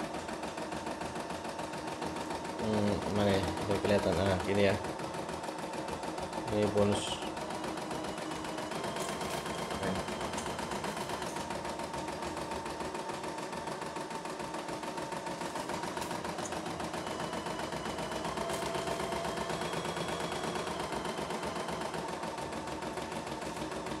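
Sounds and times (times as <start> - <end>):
embroidery machine needle stitching: 0.0 - 24.0
motor whine: 5.4 - 24.0.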